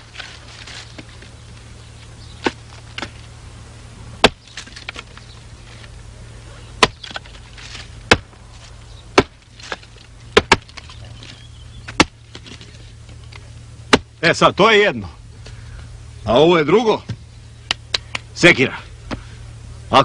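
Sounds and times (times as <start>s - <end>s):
axe chopping firewood: 2.4s - 3.2s, 4.2s - 5.2s, 6.7s - 14.2s.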